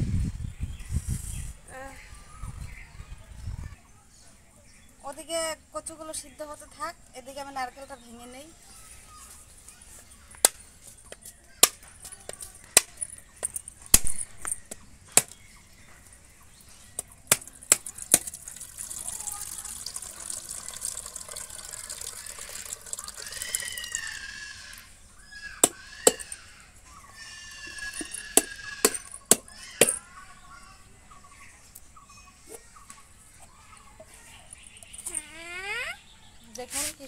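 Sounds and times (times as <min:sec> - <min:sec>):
machete striking coconut shell: 0:11.6 - 0:11.9, 0:13.9 - 0:15.4, 0:17.0 - 0:18.4, 0:25.6 - 0:26.4, 0:27.8 - 0:30.0
coconut water pouring into bowl: 0:17.7 - 0:24.8.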